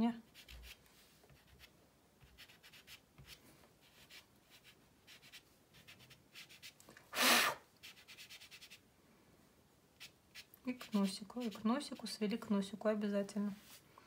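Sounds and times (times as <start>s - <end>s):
pastel scratching on paper: 0.3s - 6.8s, 7.8s - 8.8s, 10.0s - 12.2s
puff of breath: 7.1s - 7.6s.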